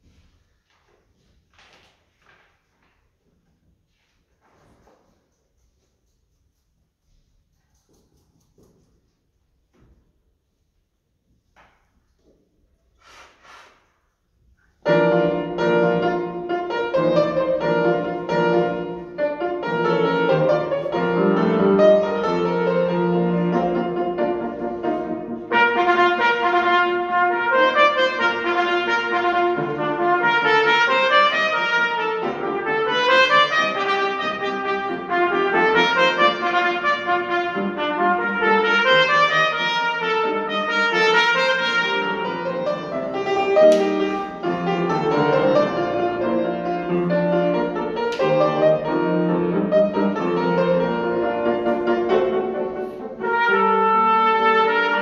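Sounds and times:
grand piano: 14.2s - 55.0s
trumpet: 14.9s - 55.0s.

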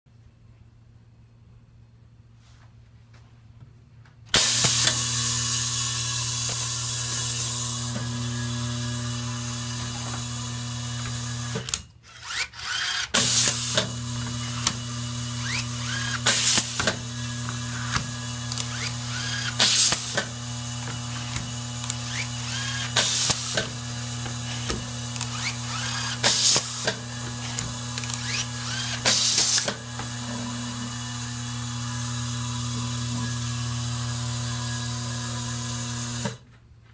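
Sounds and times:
power screwdriver bursts: 4.3s - 30.2s
screws ticking: 17.7s - 20.2s, 20.9s - 23.6s, 24.2s - 29.7s.

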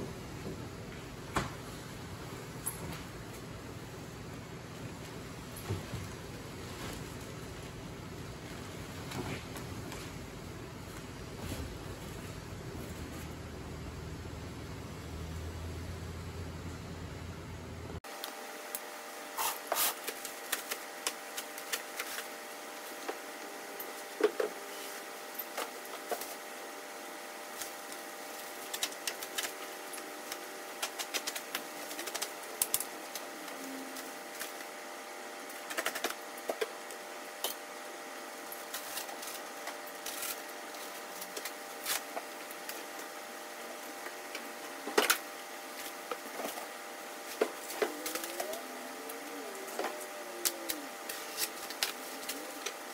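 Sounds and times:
steady background hum: 0.0s - 52.9s
plastic wrap crinkling: 27.4s - 34.8s.

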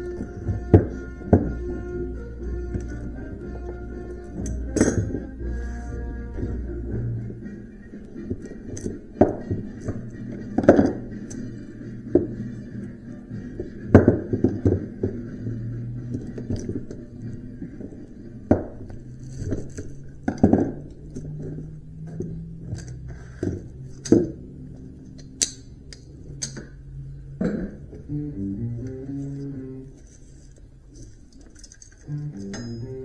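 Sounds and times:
faint background music: 0.0s - 33.0s
hand tools knocking on metal: 4.4s - 5.4s.

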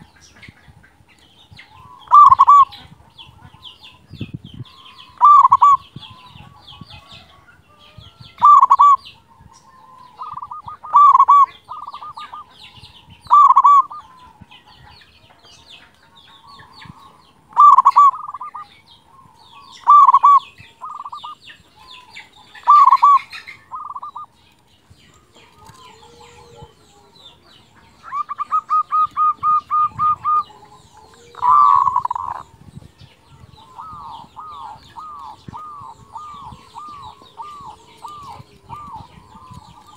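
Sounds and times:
dove cooing: 1.7s - 3.7s, 5.0s - 7.4s, 8.4s - 14.4s, 16.4s - 24.3s, 25.1s - 39.9s.

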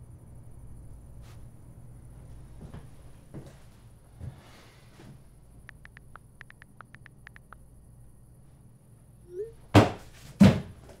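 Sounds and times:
light high ticks: 5.6s - 7.6s.

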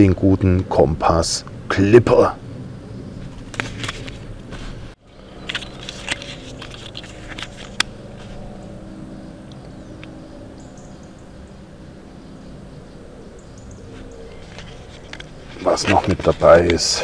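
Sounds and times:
low background hum: 0.0s - 17.0s
blister pack crackling: 5.4s - 7.8s.

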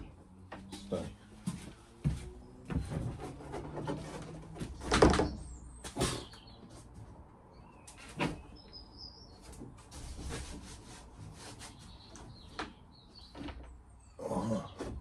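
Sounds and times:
cable scraping against ceiling panels: 2.7s - 5.2s.

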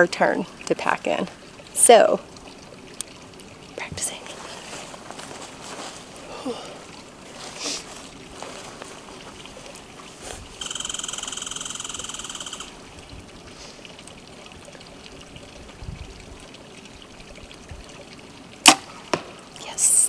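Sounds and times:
bow string snap: 18.6s - 19.3s.

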